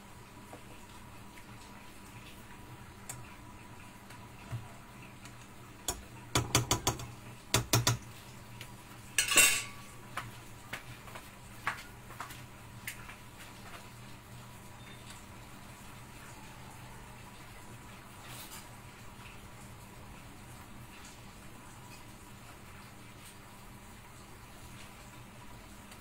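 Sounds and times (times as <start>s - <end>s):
metal kitchenware clinking: 9.2s - 9.9s.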